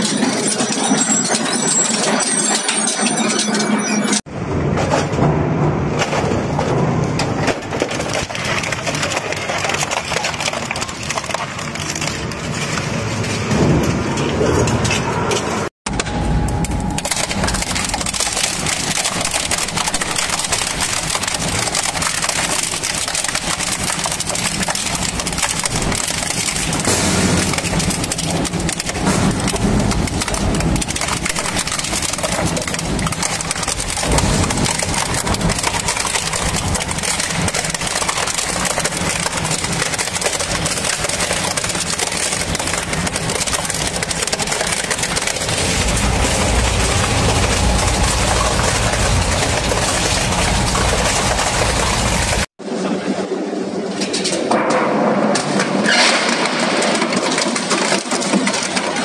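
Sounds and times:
shredder crushing material: 5.9s - 14.3s, 16.3s - 52.5s, 55.9s - 59.0s
low engine rumble: 44.2s - 52.5s.

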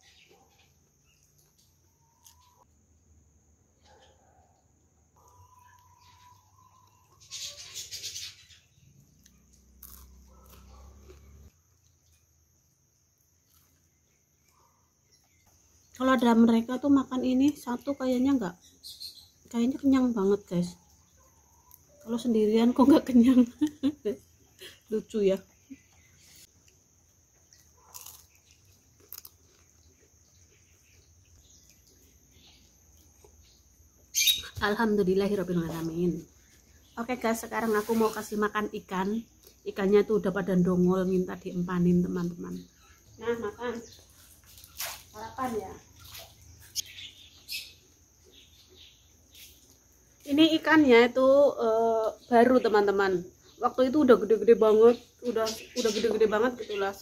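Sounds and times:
faint chewing of crispy food: 0.1s - 2.7s, 8.9s - 16.0s, 23.6s - 34.2s, 43.9s - 45.2s, 47.8s - 50.3s
crispy pancake crunching: 26.5s - 32.0s
chewing close to mouth: 26.6s - 32.2s.

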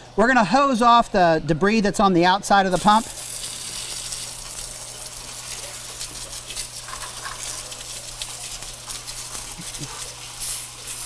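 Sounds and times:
hose water jet spraying: 2.7s - 11.0s.

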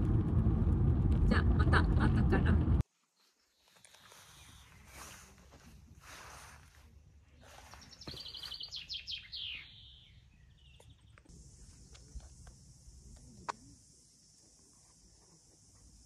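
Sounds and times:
bird trilling: 8.0s - 10.2s
steady high hiss: 11.3s - 16.0s.

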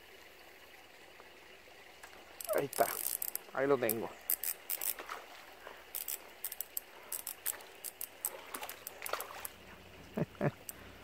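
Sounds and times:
fishing reel drag clicking: 2.4s - 5.1s, 5.9s - 9.6s.

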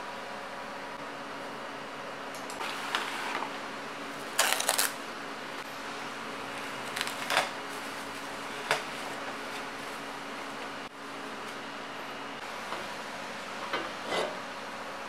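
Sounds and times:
steady background hum: 0.0s - 15.0s
cling film crinkling: 4.3s - 5.0s, 6.6s - 10.7s.

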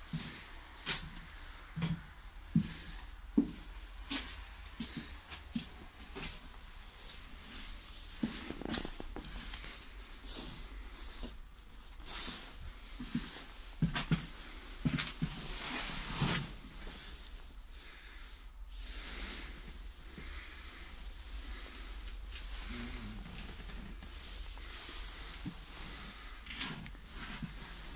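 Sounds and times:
steady low hum: 16.7s - 27.9s.

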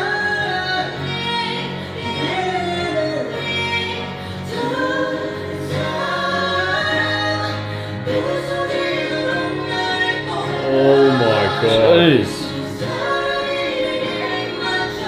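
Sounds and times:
woman singing: 0.0s - 15.0s
man singing: 10.4s - 13.2s.

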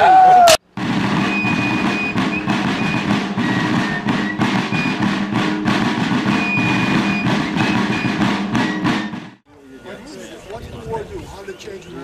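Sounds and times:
rapid drum beat: 0.7s - 9.4s
high fife notes: 0.8s - 9.4s.

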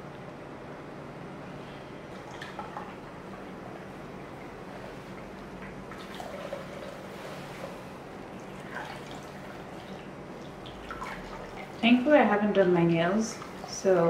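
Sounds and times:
juice trickling and dripping: 2.1s - 12.2s.

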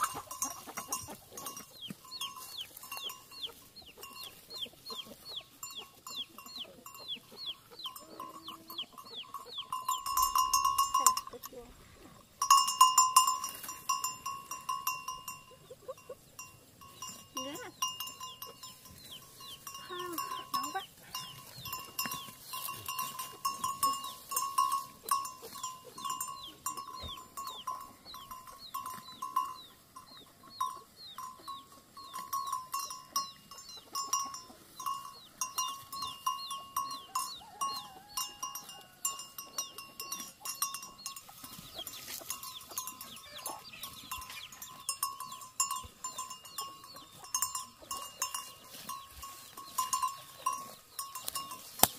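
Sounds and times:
cow bell ringing: 0.0s - 51.9s.

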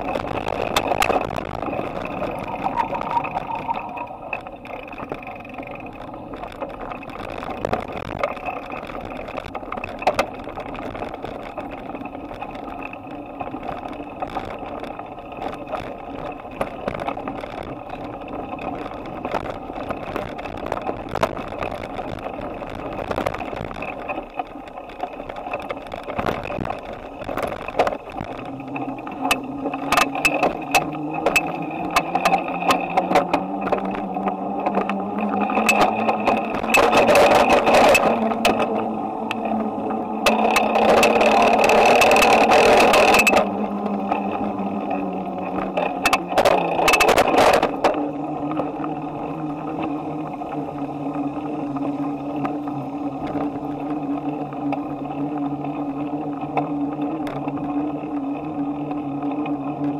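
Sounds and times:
bicycle rattling over bumps: 0.0s - 59.9s
bicycle road noise: 0.0s - 59.9s
hum rising in pitch: 1.6s - 4.4s.

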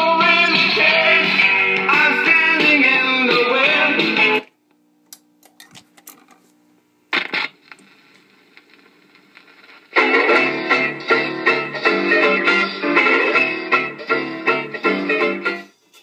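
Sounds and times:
guitar-led music: 0.0s - 4.5s, 9.9s - 15.7s.

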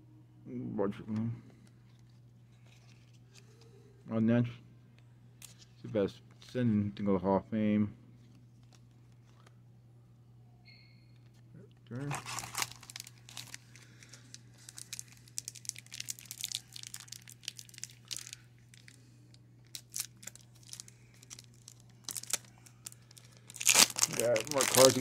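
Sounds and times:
steady low hum: 0.0s - 25.0s
foil wrapper crinkling and tearing: 11.9s - 19.0s, 19.6s - 25.0s.

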